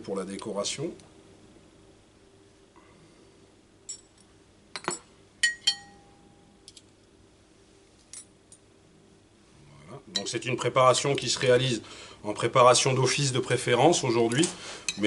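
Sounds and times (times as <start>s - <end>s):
cutlery clinking on china dish: 4.8s - 6.1s.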